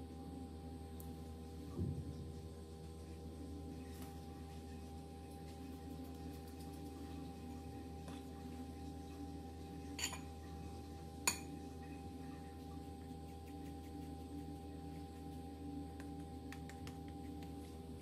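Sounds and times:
electrical hum of held tones: 0:00.0 - 0:18.0
metal spoon clinking glass bowl: 0:10.0 - 0:10.3, 0:11.2 - 0:11.5.

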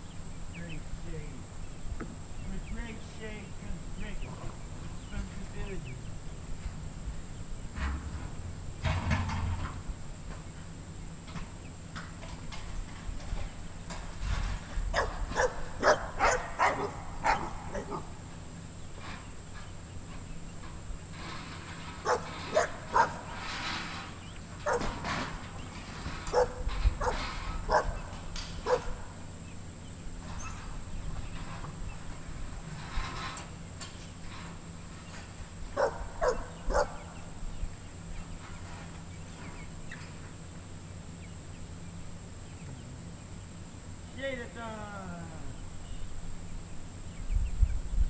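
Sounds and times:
dog barking: 0:15.0 - 0:18.1, 0:22.0 - 0:23.3, 0:24.6 - 0:25.0, 0:26.3 - 0:29.1, 0:35.8 - 0:37.0.

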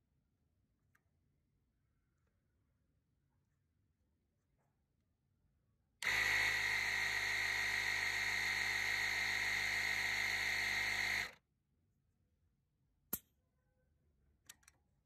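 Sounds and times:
air compressor buzzing: 0:06.0 - 0:11.4.

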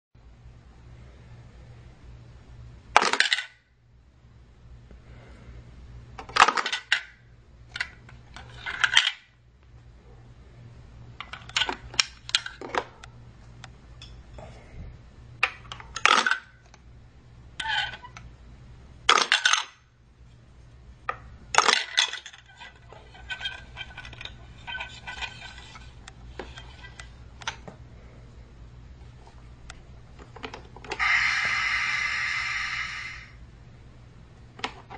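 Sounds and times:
steady low hum: 0:00.2 - 0:34.9
toy pieces clattering: 0:03.0 - 0:03.6, 0:06.2 - 0:07.0, 0:07.8 - 0:09.2, 0:15.7 - 0:16.5, 0:19.1 - 0:19.8, 0:21.6 - 0:27.0.

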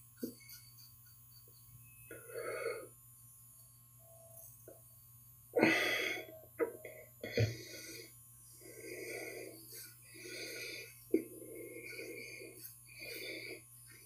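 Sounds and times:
razor scraping stubble: 0:10.9 - 0:14.0.

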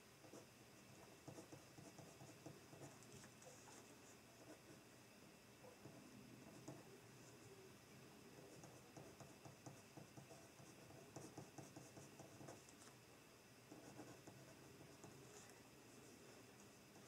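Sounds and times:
pen scratching on paper: 0:00.2 - 0:04.8, 0:08.4 - 0:12.9, 0:13.7 - 0:17.0.

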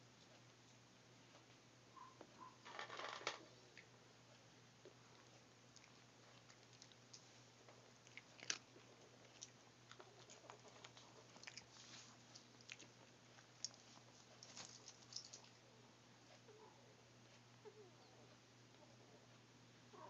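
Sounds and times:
low steady hum: 0:00.0 - 0:20.0
puppies chewing clicks and smacks: 0:03.7 - 0:16.6.

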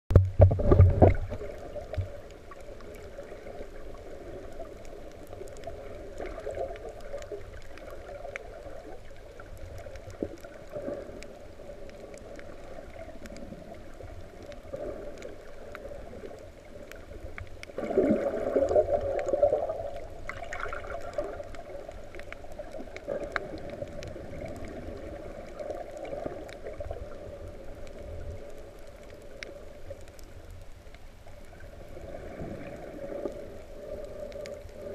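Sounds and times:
faint underwater clicks: 0:00.1 - 0:34.9
underwater surge wash: 0:00.2 - 0:30.1, 0:31.4 - 0:34.9.

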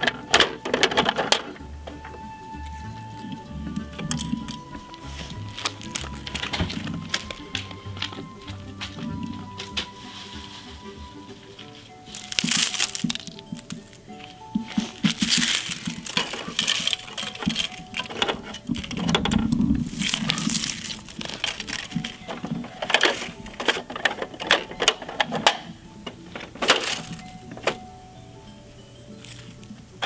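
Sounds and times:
dry leaves crackling: 0:02.6 - 0:24.8, 0:26.5 - 0:27.7.

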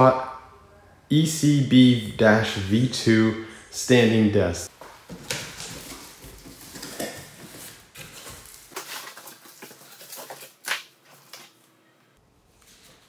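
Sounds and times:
paper rustling: 0:05.1 - 0:11.7.

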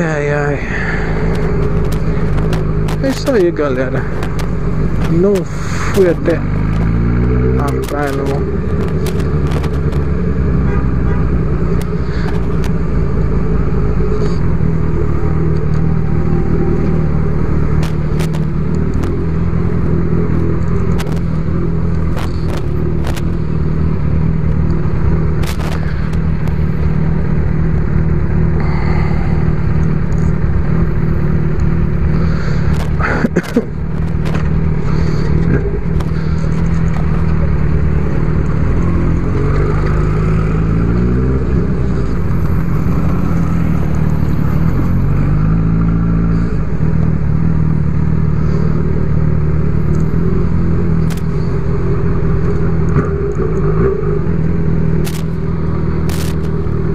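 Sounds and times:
motorcycle engine running: 0:00.0 - 0:56.9
sharp clicks: 0:51.0 - 0:51.4, 0:55.0 - 0:55.4, 0:56.0 - 0:56.7.

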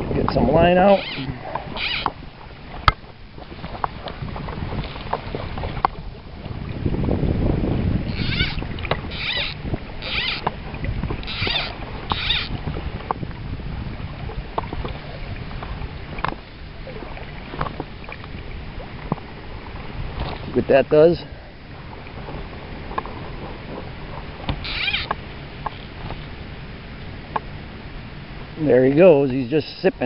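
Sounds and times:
rushing water: 0:00.0 - 0:30.0
wind: 0:00.0 - 0:30.0
fly reel click drag rasping: 0:00.8 - 0:02.2, 0:08.1 - 0:10.6, 0:11.2 - 0:12.6, 0:24.5 - 0:25.9.

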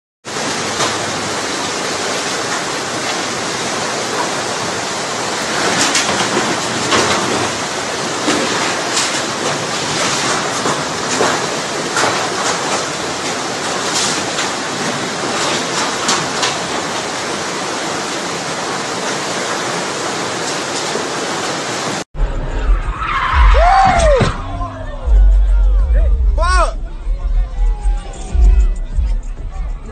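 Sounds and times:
floodwater rushing: 0:00.2 - 0:29.9
sliding pitched tone: 0:22.2 - 0:29.9
voices outdoors: 0:23.8 - 0:29.9.

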